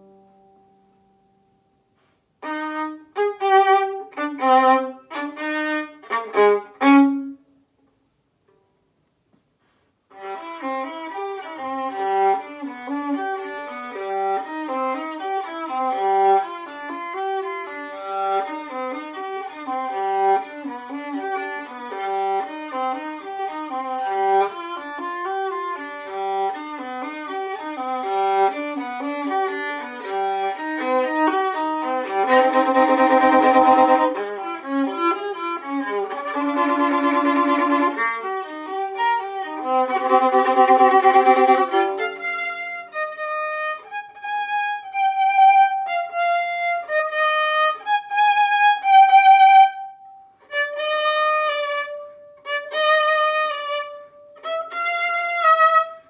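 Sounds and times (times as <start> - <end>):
solo violin: 2.4 - 7.5, 10.1 - 56.0.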